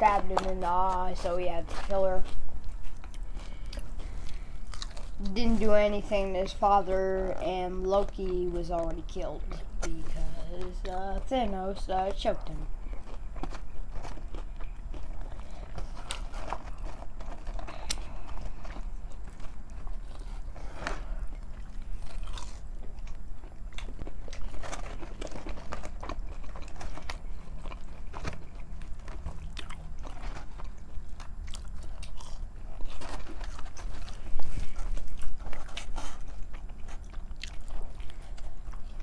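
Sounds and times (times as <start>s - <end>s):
crunchy chewing and biting: 1.2s - 5.4s, 12.2s - 39.0s.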